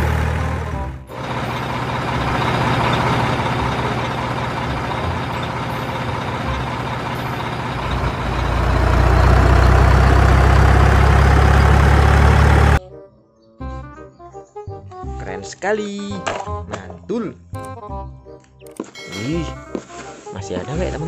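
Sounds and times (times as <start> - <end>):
heavy vehicle engine running: 0.0 - 12.8.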